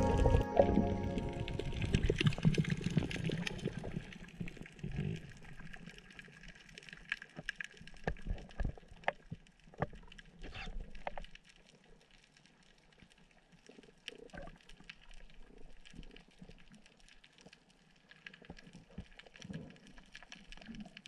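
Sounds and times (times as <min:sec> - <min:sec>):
underwater rumbling wash: 0:00.0 - 0:04.0.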